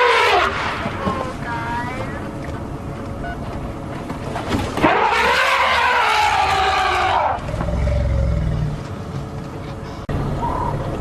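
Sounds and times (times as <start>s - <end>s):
elephant trumpeting: 0.0s - 0.9s, 4.8s - 8.6s.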